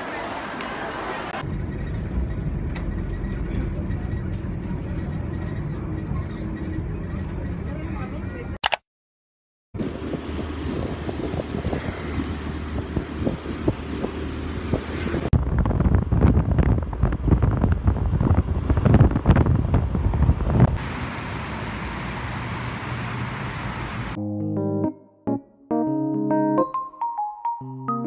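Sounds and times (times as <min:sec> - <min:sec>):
road noise: 0:00.0 - 0:08.6, 0:09.8 - 0:24.2
wind buffeting microphone: 0:09.8 - 0:21.0.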